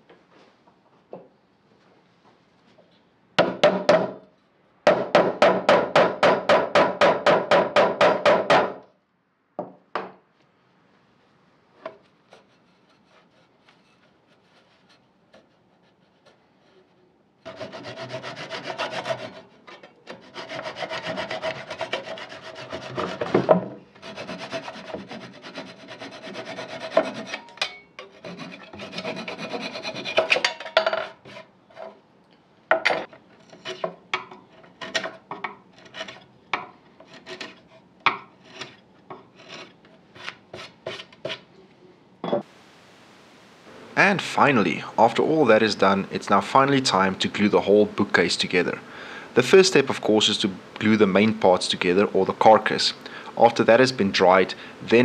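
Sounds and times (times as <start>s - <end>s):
hand saw sawing wood: 12.3s - 30.5s, 36.9s - 41.5s.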